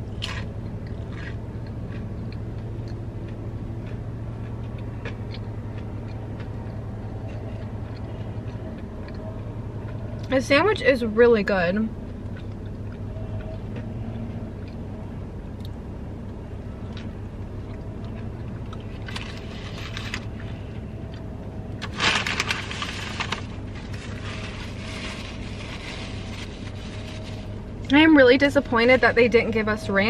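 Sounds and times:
chewing crispy food: 0.0 - 10.4, 12.1 - 27.9
low hum inside car: 0.0 - 30.0
foil wrapper crinkling: 21.8 - 27.6.

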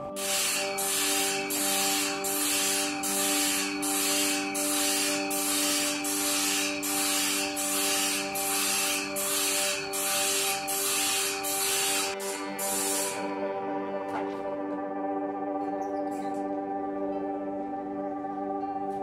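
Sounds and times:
steady hum: 0.0 - 15.2
grinding wheel on steel: 0.2 - 13.3.

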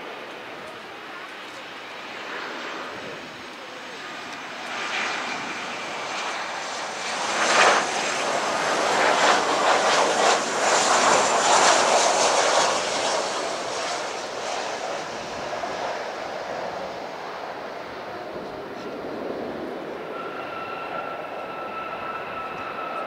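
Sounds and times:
jet airliner passing overhead: 0.0 - 23.0.

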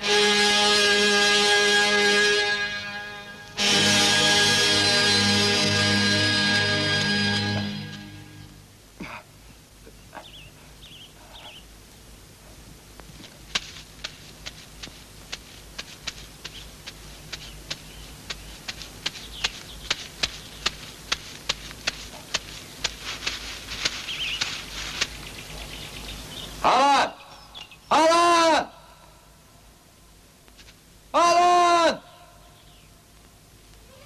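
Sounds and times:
low steady hum: 0.0 - 31.2
footsteps crunching on dry leaves: 13.0 - 26.6.

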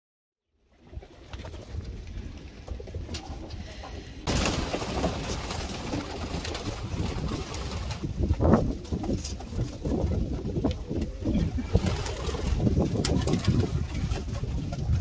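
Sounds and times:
pigeons cooing: 9.5 - 14.9.

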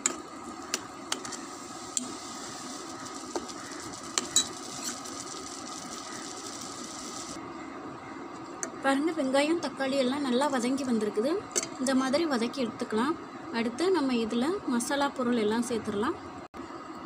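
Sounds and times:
onion and tomato sizzling: 0.0 - 7.4
steel spoon scraping a pan: 3.0 - 5.3.

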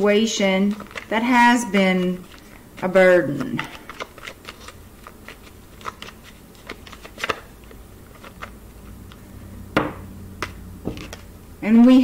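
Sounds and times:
cards being shuffled: 0.6 - 1.1, 1.9 - 9.2, 10.4 - 11.3.

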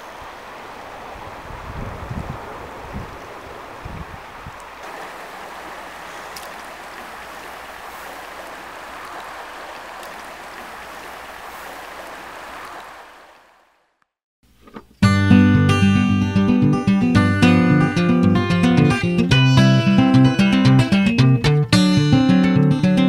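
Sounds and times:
flowing river water: 0.0 - 13.9
wind rumble on microphone: 0.2 - 4.8.

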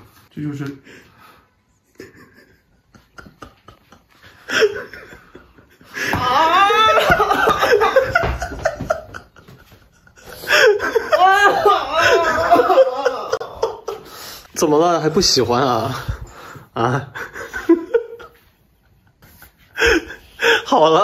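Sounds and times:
young man laughing: 1.8 - 14.3, 16.8 - 20.7.

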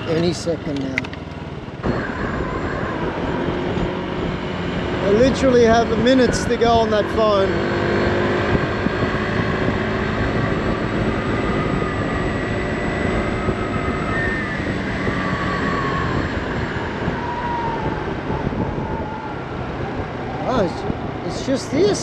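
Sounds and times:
scooter engine cruising: 0.0 - 22.0
wind and road noise: 0.0 - 22.0.

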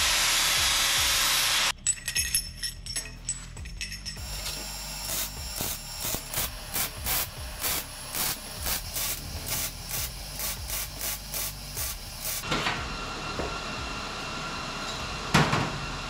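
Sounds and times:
welder crackling hiss: 0.0 - 1.7, 4.2 - 12.5.

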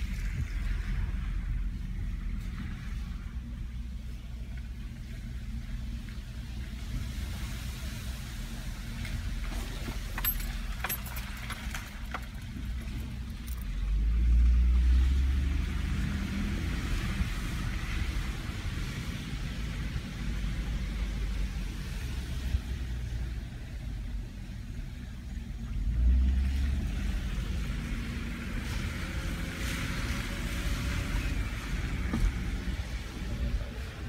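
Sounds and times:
engine and road rumble: 0.0 - 34.0.

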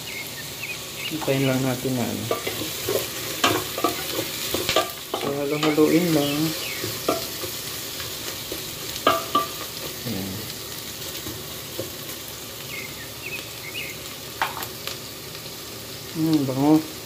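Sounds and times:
onions sizzling in hot oil: 0.0 - 17.0
spatula knocking and scraping pot: 2.2 - 5.9, 6.8 - 7.6, 8.5 - 10.0.

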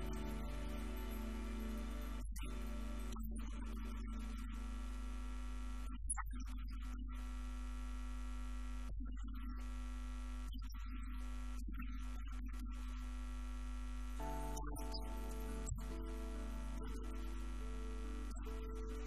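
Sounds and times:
faint sustained tones: 0.0 - 3.8, 14.2 - 19.0.

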